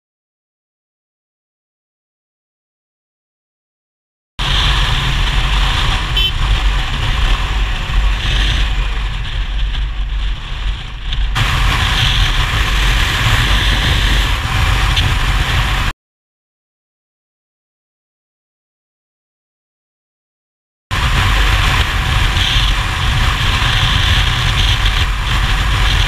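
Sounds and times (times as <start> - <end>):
motorcycle engine rumble: 4.4 - 15.9, 20.9 - 26.0
road noise: 4.4 - 15.9, 20.9 - 26.0
wind rush: 4.4 - 15.9, 20.9 - 26.0.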